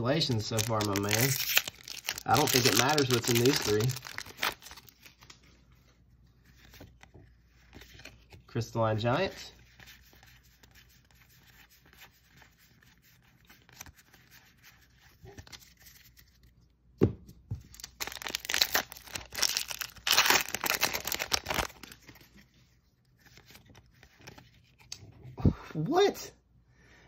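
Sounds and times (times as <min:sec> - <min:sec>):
foil wrapper tearing and crinkling: 0:00.0 - 0:05.4, 0:17.7 - 0:22.1
trading cards rustling: 0:00.0 - 0:16.6, 0:17.6 - 0:24.9.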